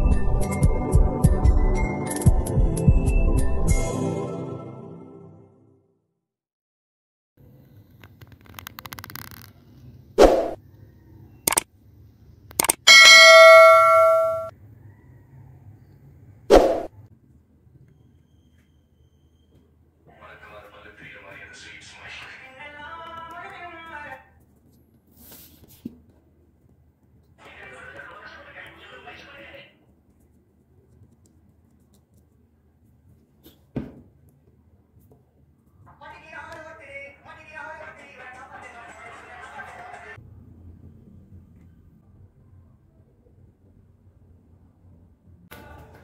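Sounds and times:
short swish effect: 10.2s - 10.6s, 16.5s - 16.9s.

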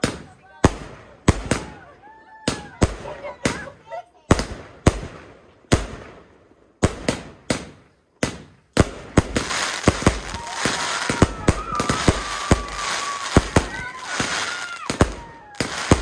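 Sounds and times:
fireworks bangs: 0.0s - 16.0s
fireworks crackling: 2.5s - 16.0s
firework whistle: 10.0s - 16.0s.

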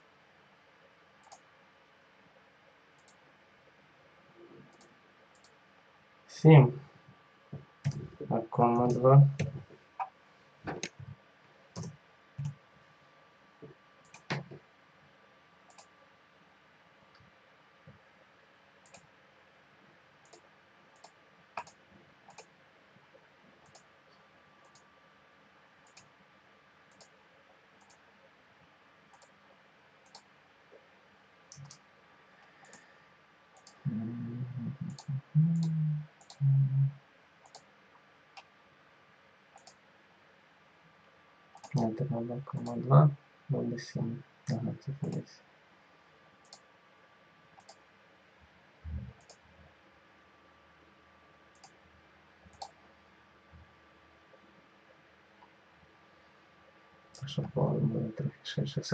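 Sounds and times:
computer mouse clicking: 1.2s - 1.4s, 3.0s - 3.2s, 4.7s - 5.6s, 14.0s - 14.6s, 15.7s - 15.9s, 18.8s - 19.1s, 20.2s - 22.5s, 23.6s - 23.9s, 24.6s - 24.9s, 25.8s - 26.1s, 26.9s - 27.2s, 27.8s - 28.0s, 29.1s - 29.4s, 30.0s - 30.3s, 31.5s - 31.8s, 33.6s - 33.8s, 34.9s - 36.4s, 37.4s - 37.7s, 39.5s - 39.8s, 41.6s - 41.8s, 46.4s - 46.7s, 47.6s - 47.8s, 49.1s - 49.4s, 51.5s - 51.8s, 52.5s - 52.8s
short low sounds: 33.9s - 37.0s.

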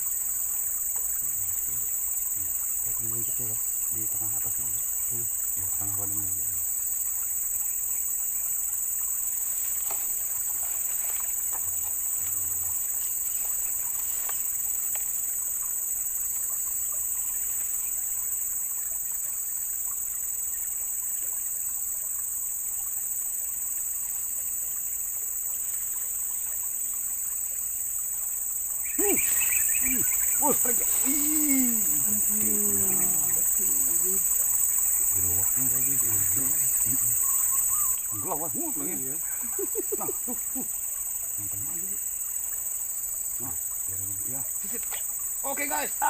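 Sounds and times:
faint ticks: 0.0s - 20.0s, 39.2s - 45.4s
high-pitched insect chorus: 0.0s - 46.0s.

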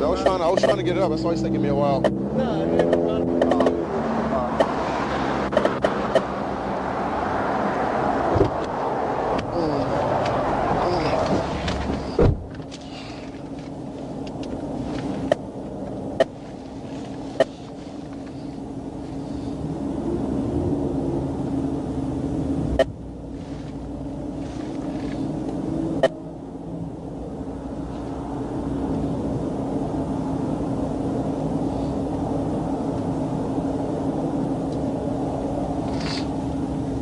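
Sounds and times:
constant hum: 0.0s - 37.0s
traffic passing: 0.0s - 37.0s
sharp clicks: 2.8s - 3.8s, 4.6s - 4.8s, 5.5s - 6.3s.

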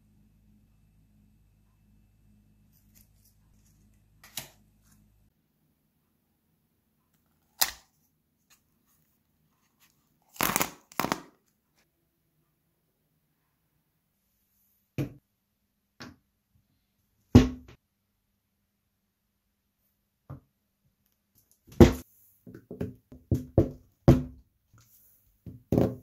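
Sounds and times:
faint low hum: 0.0s - 7.4s.

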